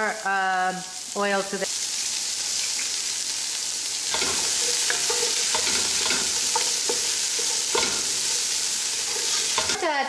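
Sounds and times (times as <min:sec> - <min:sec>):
vegetables sizzling in hot oil: 0:00.0 - 0:10.0
metal pot ringing: 0:04.2 - 0:09.8
wooden spoon scraping a pot: 0:04.2 - 0:09.8.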